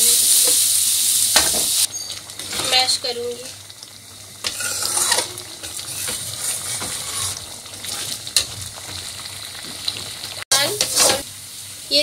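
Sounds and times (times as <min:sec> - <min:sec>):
dal sizzling and bubbling in oil: 0:00.0 - 0:12.0
spatula scraping and knocking on pan: 0:04.4 - 0:09.0, 0:10.6 - 0:11.2.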